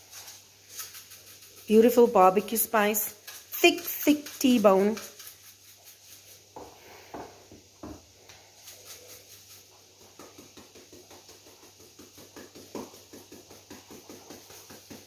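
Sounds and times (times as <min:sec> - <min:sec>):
spice shaker rattling: 0:00.0 - 0:06.6, 0:08.4 - 0:15.0
shaker tap: 0:10.0 - 0:15.0.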